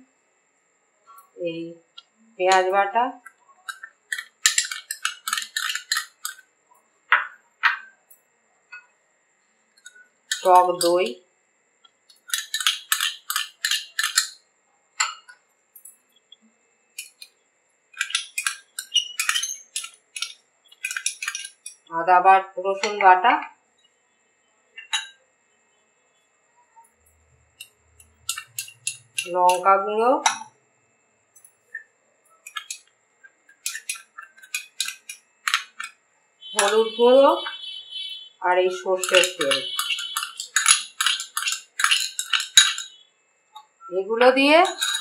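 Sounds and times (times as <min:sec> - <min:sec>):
spoon clinking on glass bowls: 0:03.6 - 0:06.4, 0:09.8 - 0:11.1, 0:12.1 - 0:14.4, 0:17.0 - 0:17.3, 0:18.0 - 0:21.9, 0:24.8 - 0:25.2, 0:27.1 - 0:30.5, 0:32.4 - 0:32.8, 0:33.5 - 0:37.6, 0:38.6 - 0:43.0, 0:44.5 - 0:45.0.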